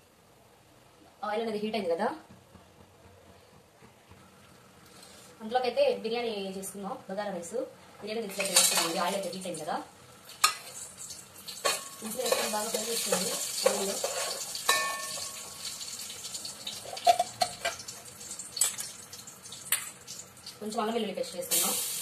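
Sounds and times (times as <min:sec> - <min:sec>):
hot oil sizzling: 0:08.1 - 0:22.0.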